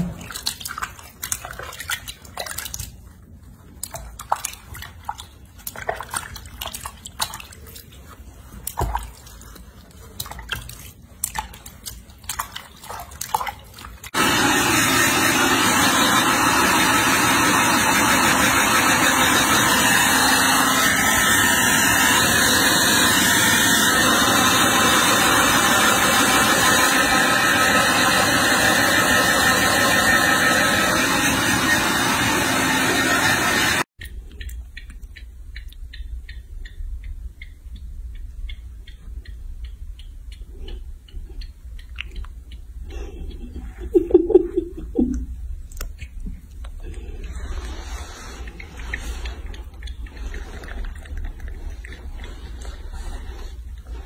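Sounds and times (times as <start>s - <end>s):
water sloshing and splashing: 0.0s - 14.2s, 45.0s - 54.0s
hair dryer blowing: 14.2s - 33.9s.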